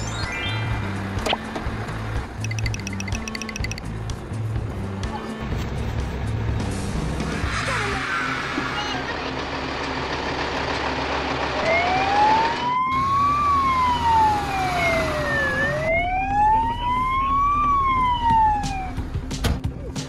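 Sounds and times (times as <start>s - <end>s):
siren wailing: 11.6s - 19.0s.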